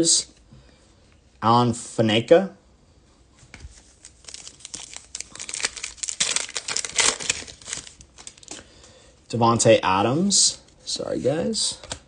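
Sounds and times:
foil wrapper crinkling and tearing: 0:03.8 - 0:08.6.

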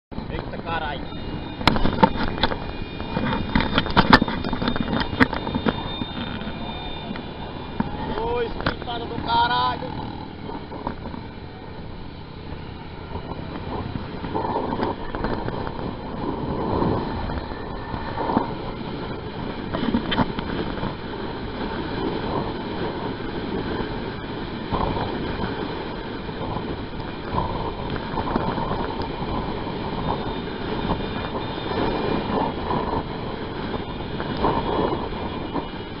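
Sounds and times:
engine and road noise: 0:00.1 - 0:36.0
wind on microphone: 0:00.1 - 0:36.0.

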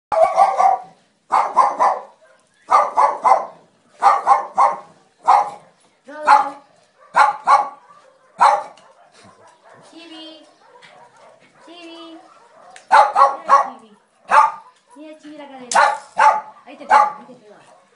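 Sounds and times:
dog barking: 0:00.1 - 0:15.1, 0:15.7 - 0:17.9.

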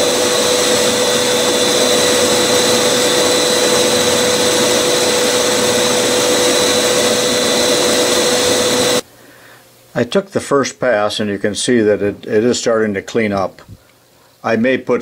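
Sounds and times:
grinder whine and grinding hiss: 0:00.0 - 0:09.1.

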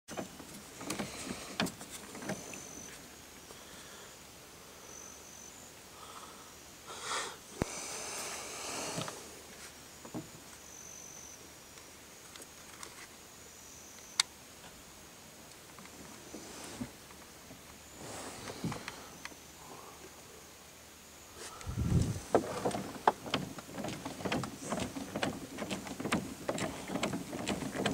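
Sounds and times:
paddle knocking on hull: 0:22.0 - 0:27.9.

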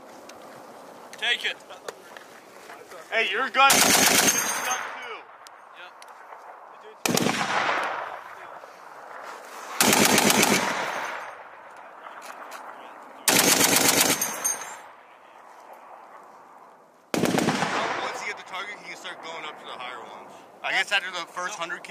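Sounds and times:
rolling gunfire echo: 0:03.6 - 0:05.6, 0:06.2 - 0:15.1, 0:17.1 - 0:19.8
heavy machine gun bursts: 0:03.7 - 0:04.7, 0:09.8 - 0:11.1, 0:13.3 - 0:14.7.

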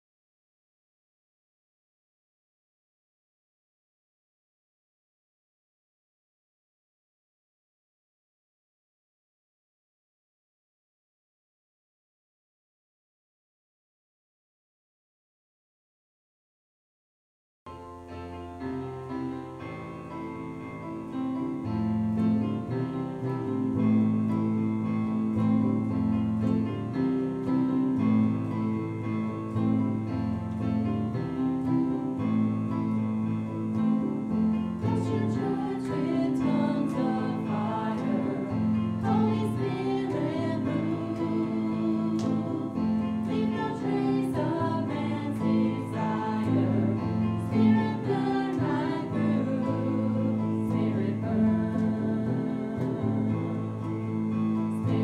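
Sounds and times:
sustained keyboard chords: 0:17.7 - 0:55.0
people singing: 0:33.7 - 0:55.0.

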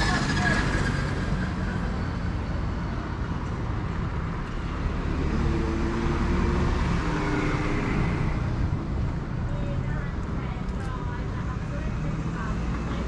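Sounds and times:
road traffic rumble: 0:00.0 - 0:13.0
vehicle engine hum: 0:00.0 - 0:13.0.

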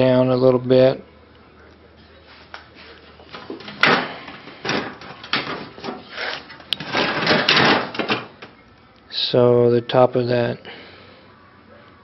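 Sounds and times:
metal panels scraping and rattling: 0:03.6 - 0:08.3.

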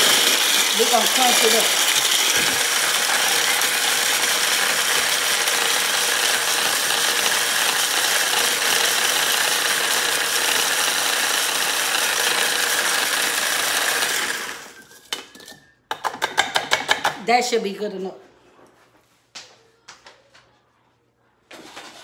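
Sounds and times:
electric food chopper grinding: 0:00.0 - 0:14.8.

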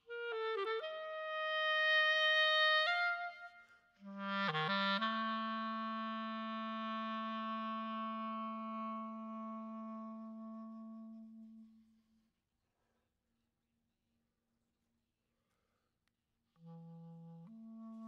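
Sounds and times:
solo clarinet playing: 0:00.0 - 0:12.0, 0:16.6 - 0:18.0.

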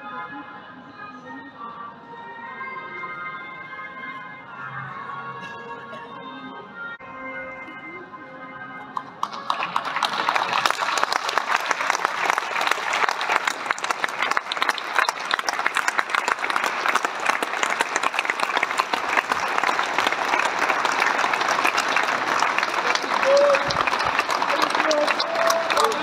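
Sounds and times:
crowd applauding: 0:09.0 - 0:26.0.

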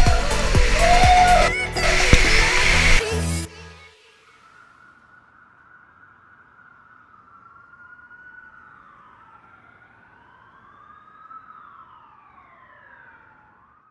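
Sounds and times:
siren-like wailing tones: 0:00.0 - 0:03.0, 0:04.1 - 0:13.9.

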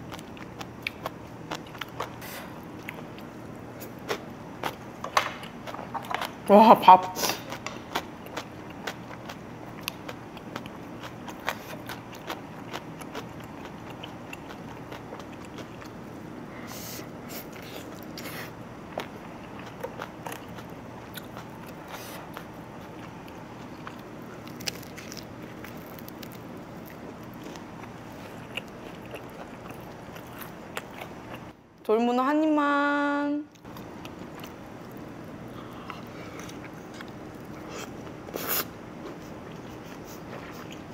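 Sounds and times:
person chewing: 0:00.0 - 0:04.8, 0:07.3 - 0:31.5, 0:33.5 - 0:40.9
steady low hum: 0:00.0 - 0:40.9.

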